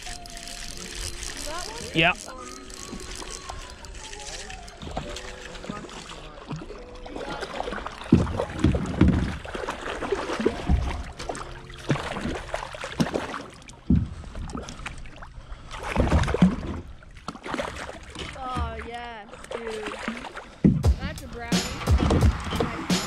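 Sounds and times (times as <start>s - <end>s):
paddle strokes in water: 0.0s - 21.1s
paddle thumping hull: 5.6s - 12.4s, 20.6s - 22.9s.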